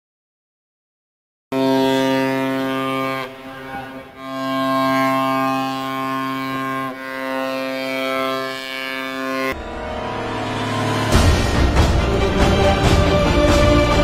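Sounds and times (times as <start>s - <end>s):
bowed strings long notes: 8.1s - 14.0s.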